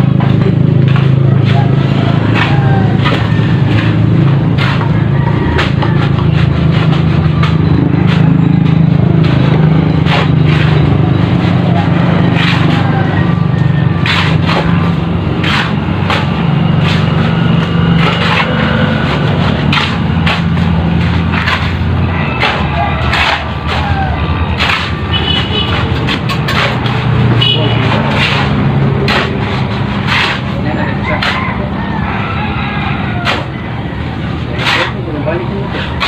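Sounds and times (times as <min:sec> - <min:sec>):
shovels scraping concrete mix: 0:00.0 - 0:36.0.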